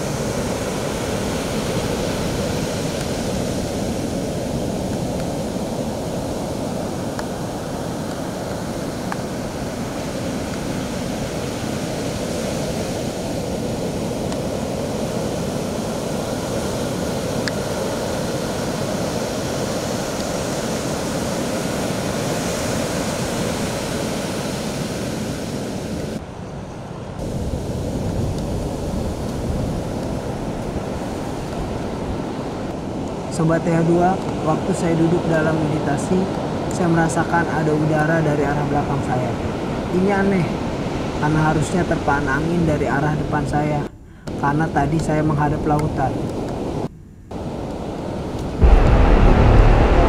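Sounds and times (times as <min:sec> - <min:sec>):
ocean surf breaking on beach: 0:00.0 - 0:26.3, 0:27.2 - 0:43.6, 0:44.3 - 0:50.0
wind on microphone: 0:00.0 - 0:33.3, 0:46.0 - 0:50.0.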